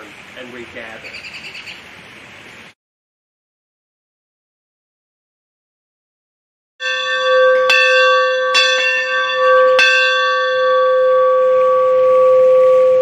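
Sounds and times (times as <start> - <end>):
church bell ringing: 6.8 - 13.0.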